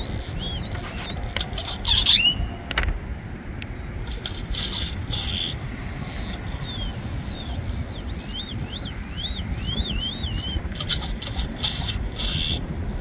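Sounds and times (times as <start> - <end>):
grackle whistled calls: 0.0 - 2.7, 4.1 - 13.0
harsh rattling bird notes: 4.1 - 12.6.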